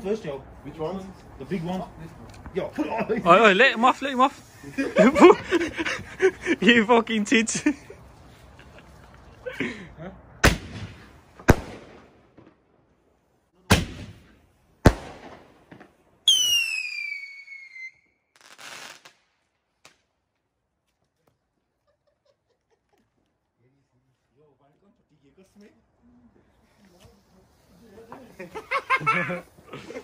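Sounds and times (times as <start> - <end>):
firework bangs: 10.4 - 12.7, 13.7 - 20.1
firework crackle: 13.7 - 20.5
falling firework whistle: 16.2 - 19.1.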